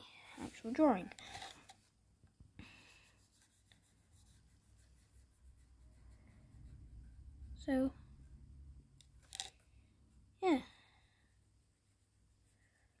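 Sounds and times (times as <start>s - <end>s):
marker scratching on card: 3.0s - 7.4s.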